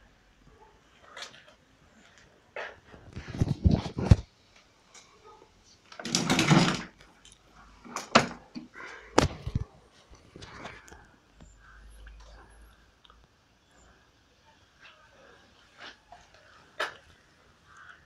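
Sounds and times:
plastic scraping on concrete: 5.9s - 7.0s
plastic knocks and clatters: 6.0s - 7.0s.

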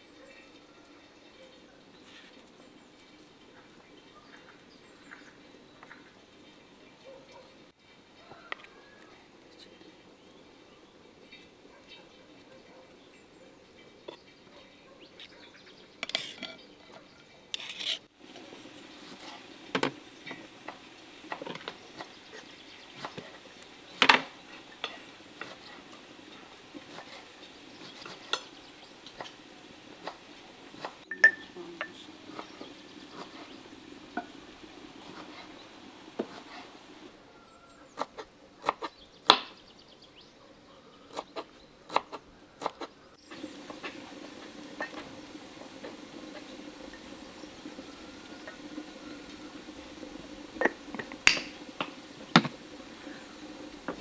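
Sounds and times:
knife scraping ceramic plate: 16.0s - 16.6s, 17.5s - 18.1s
jars and teapot clinking: 16.0s - 16.7s, 31.0s - 32.6s, 43.3s - 49.6s, 50.5s - 54.0s.

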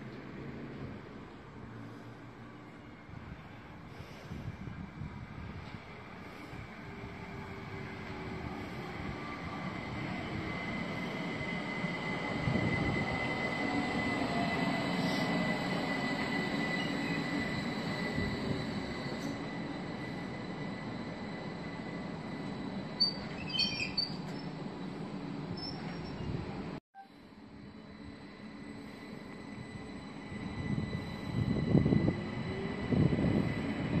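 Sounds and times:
train wheels rumbling on rail: 3.2s - 26.8s, 27.9s - 34.0s
wheel squeaks: 23.0s - 24.6s
train motor whine: 27.1s - 34.0s.

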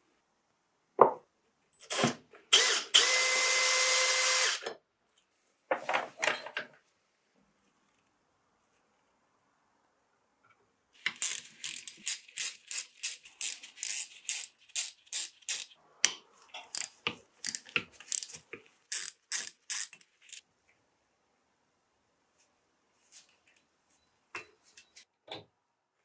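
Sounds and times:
ratchet driver clicking: 18.9s - 20.4s.

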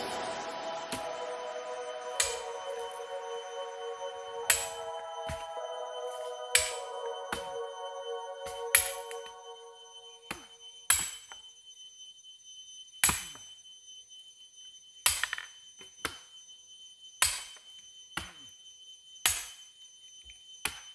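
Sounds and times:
faint steady high tone: 0.0s - 10.9s.

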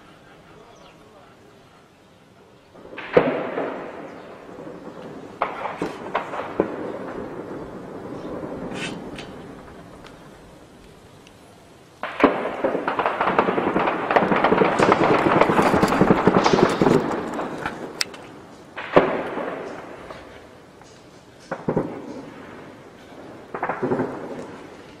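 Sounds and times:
rapid gunfire: 2.9s - 9.2s, 12.0s - 18.0s, 23.5s - 24.4s.

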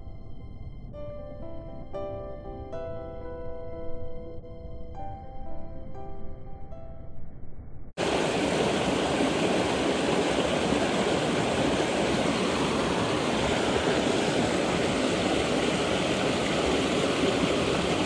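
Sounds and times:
brook rushing over rocks: 8.0s - 18.0s.

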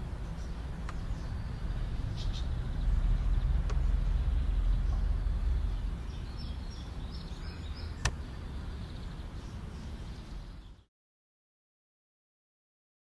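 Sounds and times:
low outdoor rumble: 0.0s - 10.9s
faint bird chirps: 0.2s - 10.9s
sharp click: 8.0s - 8.2s.

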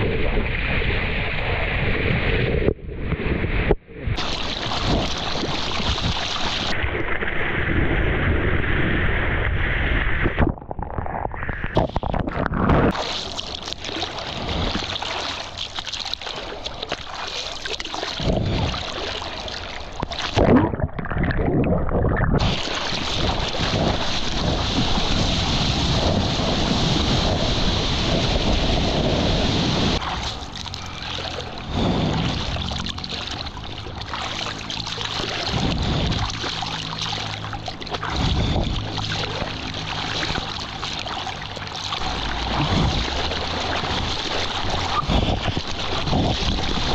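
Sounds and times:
sea water splashing: 0.0s - 9.2s, 10.0s - 46.9s
whitewater churning: 4.2s - 7.4s, 11.8s - 21.4s, 22.4s - 46.9s
hands stroking through water: 11.4s - 26.2s, 30.0s - 46.9s.

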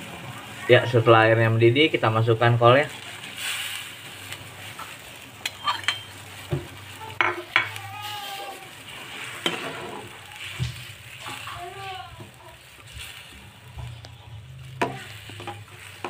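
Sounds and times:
boiling broth hiss: 0.0s - 16.0s
spoon scraping a wok: 3.2s - 11.6s, 12.2s - 16.0s.

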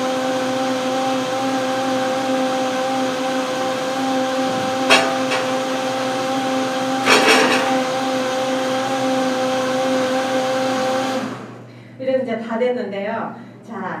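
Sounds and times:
blender motor whining: 0.0s - 11.7s.

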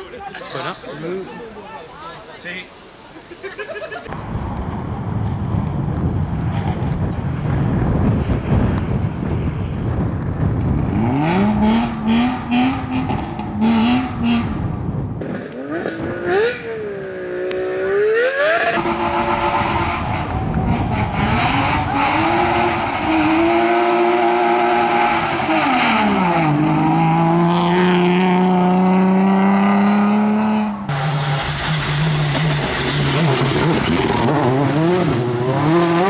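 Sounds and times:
car engine revving: 10.8s - 36.0s.

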